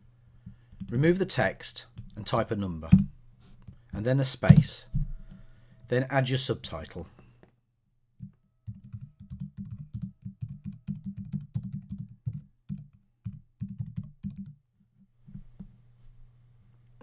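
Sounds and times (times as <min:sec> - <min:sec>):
keyboard typing: 0:08.2 - 0:14.6.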